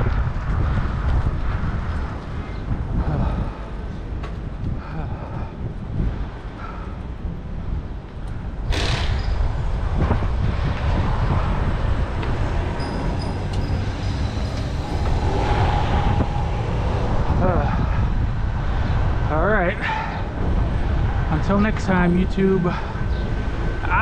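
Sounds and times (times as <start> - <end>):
road traffic: 0.0 - 24.0
wind rumble on microphone: 0.0 - 24.0
sudden noise: 8.6 - 19.1.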